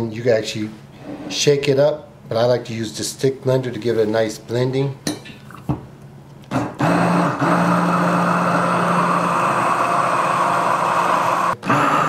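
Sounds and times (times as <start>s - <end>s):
stick blender motor running: 6.5s - 12.0s.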